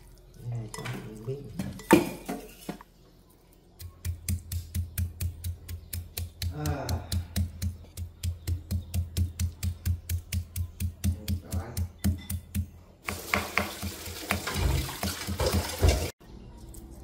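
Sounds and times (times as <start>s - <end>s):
knife chopping on wooden board: 3.8s - 16.0s.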